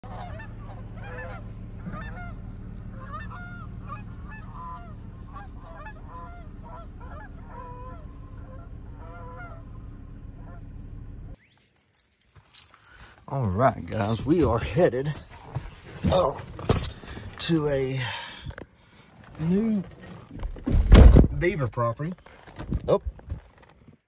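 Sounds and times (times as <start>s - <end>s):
flock of birds honking: 0.0s - 10.7s.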